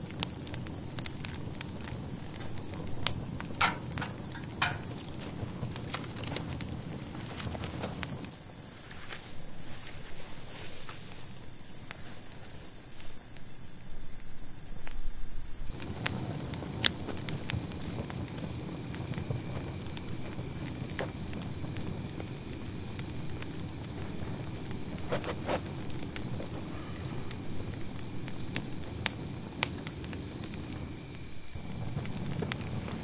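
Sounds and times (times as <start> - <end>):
campfire crackling: 0.0 - 33.0
insects trilling: 0.0 - 33.0
footsteps on dirt: 3.4 - 8.2.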